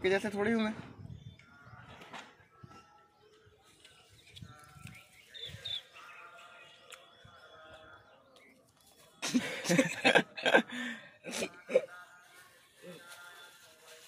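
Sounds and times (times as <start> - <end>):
birds chirping faintly: 0.0 - 13.9.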